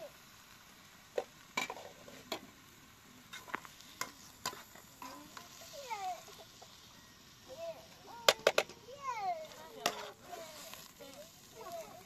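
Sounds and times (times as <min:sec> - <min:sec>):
faint frying sizzle: 0:00.0 - 0:12.0
utensil stirring in pot: 0:03.2 - 0:06.8, 0:08.4 - 0:12.0.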